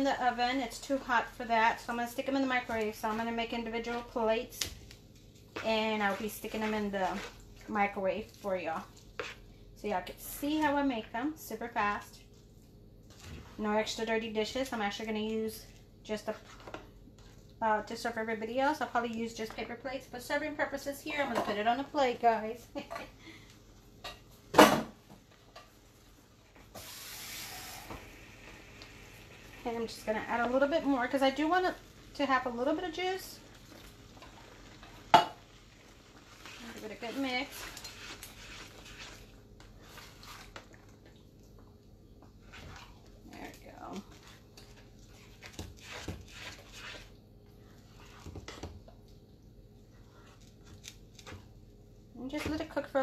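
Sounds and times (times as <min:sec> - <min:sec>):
food sizzling in hot pan: 0:26.8 - 0:28.4
thick chili squishing: 0:35.8 - 0:43.4, 0:44.0 - 0:49.2.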